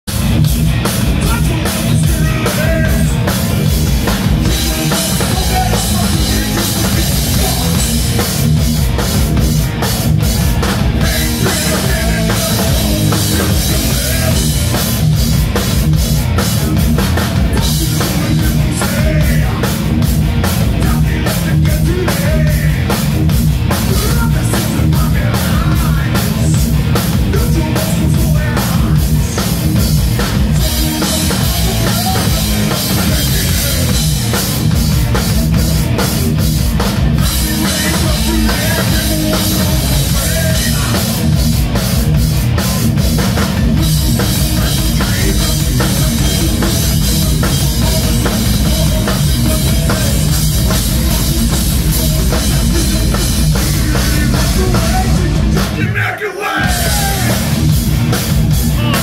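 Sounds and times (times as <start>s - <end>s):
thrash metal band playing: 0.0s - 59.0s
man singing: 1.1s - 3.7s, 4.3s - 8.3s, 10.9s - 15.1s, 16.3s - 23.1s, 23.8s - 29.6s, 30.4s - 34.2s, 37.2s - 41.4s, 42.6s - 57.7s, 58.6s - 59.0s.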